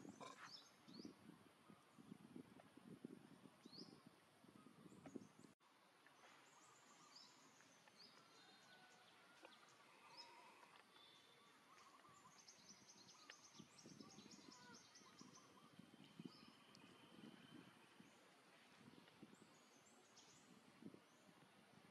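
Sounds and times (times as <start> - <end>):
birds chirping: 0.0 - 1.3, 6.2 - 21.6.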